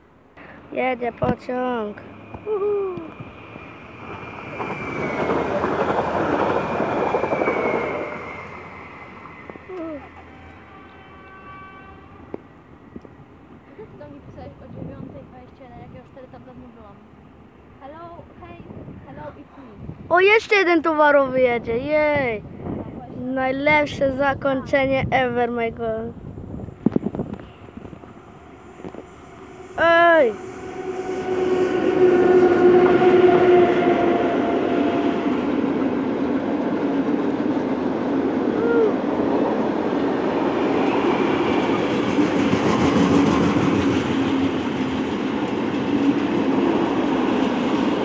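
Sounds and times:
freight train rumbling: 0.0 - 48.0
train wheels clattering over rails: 4.0 - 8.4, 40.1 - 48.0
thin high whine: 26.8 - 34.2.

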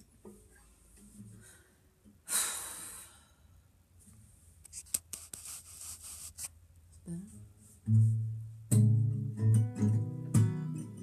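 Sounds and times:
person exhaling breathily: 1.4 - 3.5.

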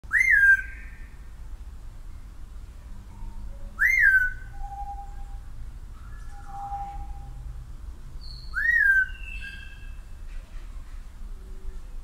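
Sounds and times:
parrot whistling: 0.1 - 0.8, 3.8 - 5.1, 8.5 - 9.7.

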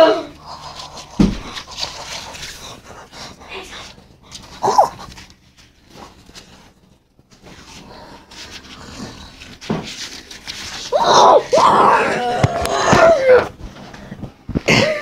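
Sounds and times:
faint rustling and scuffing: 3.7 - 11.0
whimper falling in pitch: 10.9 - 13.6.

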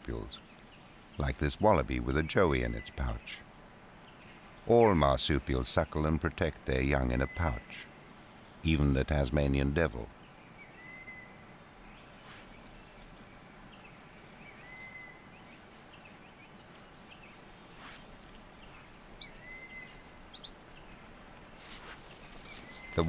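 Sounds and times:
soft bird chirps: 0.0 - 23.0
sharp high bird chirps: 19.2 - 20.6.

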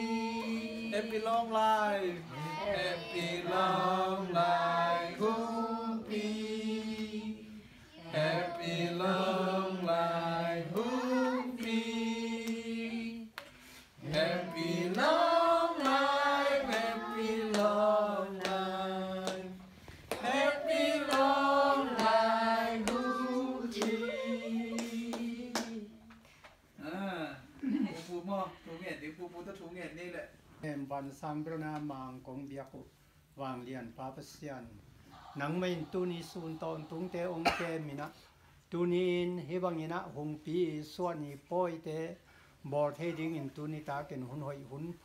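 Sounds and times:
group of people singing: 0.0 - 26.1.

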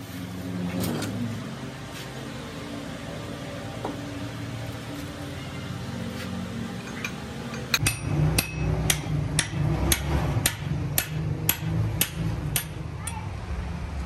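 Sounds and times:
hammer striking chisel on metal: 6.8 - 13.2.

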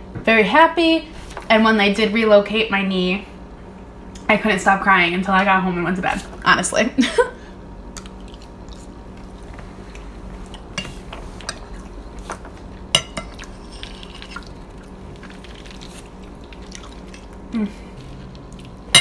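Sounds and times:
faint steady hum: 0.0 - 19.0
chewing: 7.9 - 18.9.

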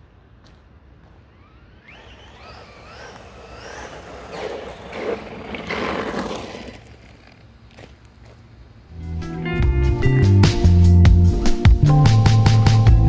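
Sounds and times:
rc truck motor whine: 0.4 - 8.3
rushing pass-by noise: 1.4 - 7.5.

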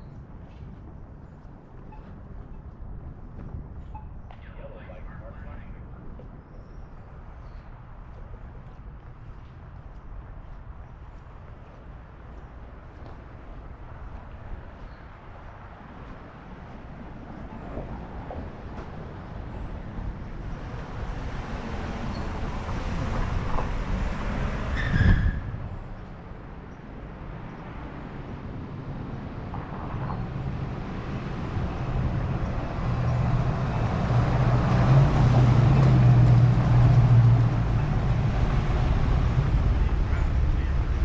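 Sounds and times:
traffic rumbling past: 7.0 - 41.0
low engine hum: 29.5 - 41.0.

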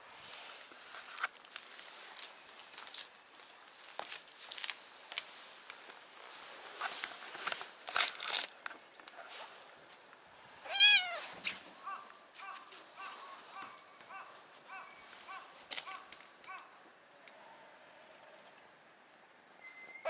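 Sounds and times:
rustling of movement: 0.0 - 18.7
cat meowing: 10.6 - 11.3
faint short chirps: 19.6 - 20.0.

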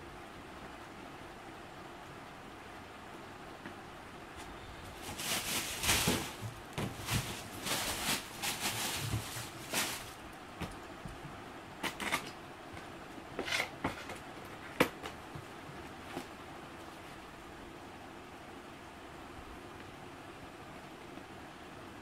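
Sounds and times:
cardboard box rustling and scraping: 4.9 - 10.2.

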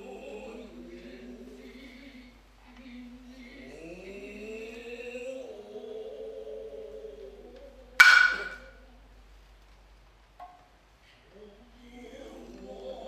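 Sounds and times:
hand drum crack: 8.0 - 8.7.

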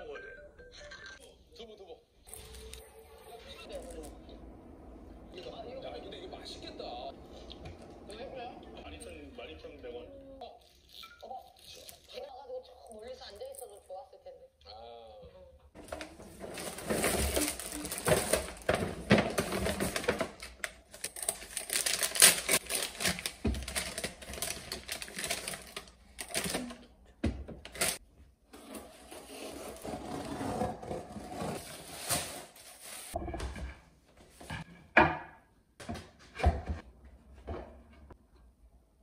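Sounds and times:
paper bag rustling: 2.3 - 2.8, 15.8 - 26.8, 27.6 - 28.0, 28.9 - 33.2
bubble wrap handled: 15.8 - 26.8
plastic wrap crinkling: 15.8 - 26.9, 27.6 - 28.0.

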